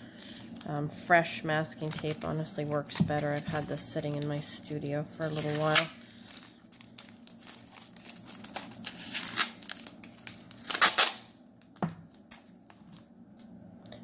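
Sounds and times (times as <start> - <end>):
handling tape and foil: 0.2 - 13.1
tape ripping: 5.2 - 6.0, 6.8 - 12.5
tape peeling off roll: 6.9 - 11.3.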